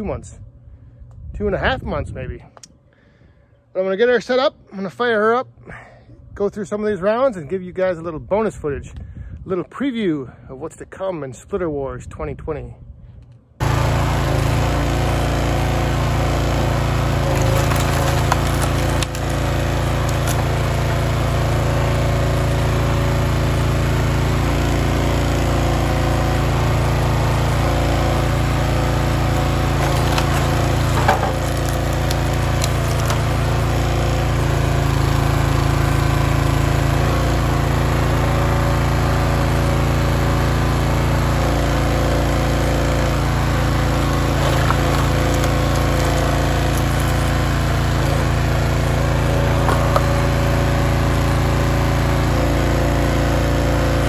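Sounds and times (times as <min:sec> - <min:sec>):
gas engine running: 0:13.6 - 0:54.0
wood cracking: 0:17.2 - 0:20.9, 0:29.6 - 0:33.8, 0:44.1 - 0:47.6, 0:49.6 - 0:50.2.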